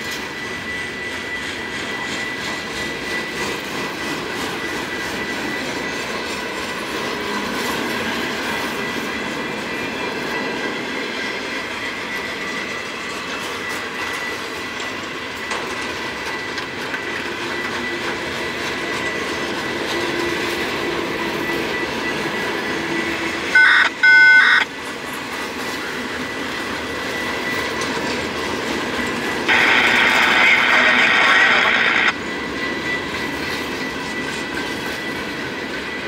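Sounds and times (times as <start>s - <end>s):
freight train cars rolling: 0.0s - 36.0s
short loud pitched tones: 23.6s - 24.7s, 29.5s - 32.2s.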